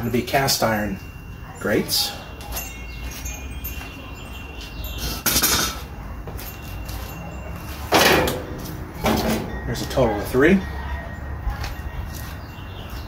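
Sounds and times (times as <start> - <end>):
cast iron grate clinking: 0.0 - 12.8.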